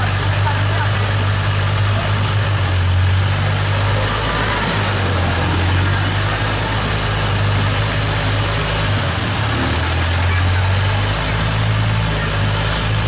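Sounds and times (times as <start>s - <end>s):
motorboat engine humming: 0.0s - 13.0s
water rushing along hull: 0.0s - 13.0s.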